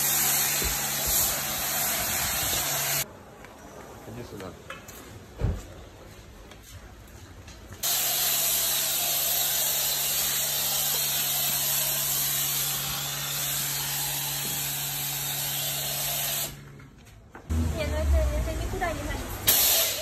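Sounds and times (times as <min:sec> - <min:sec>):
spray wand hissing: 0:00.0 - 0:03.0, 0:07.8 - 0:16.6, 0:19.5 - 0:20.0.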